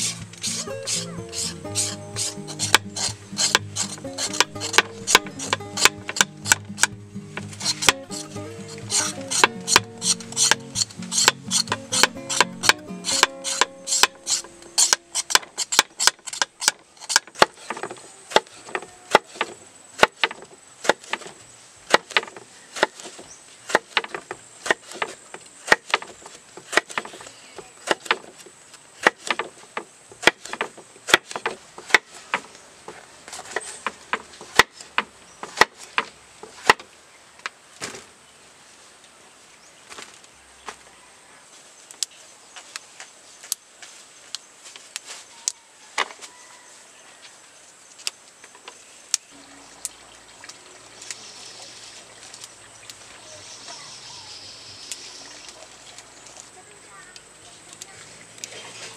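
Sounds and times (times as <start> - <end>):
knife chopping on wooden board: 0.5 - 18.5.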